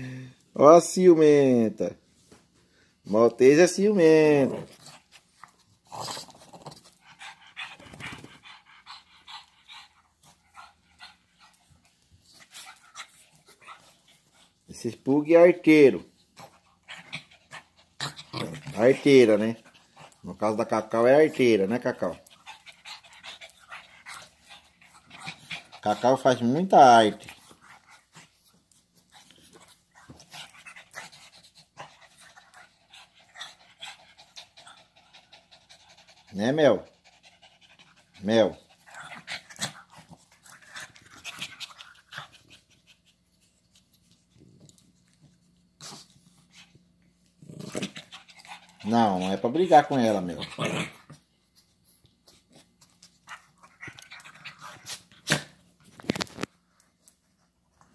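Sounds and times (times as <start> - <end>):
small dog panting: 4.4 - 14.7, 16.2 - 47.0, 47.9 - 50.4.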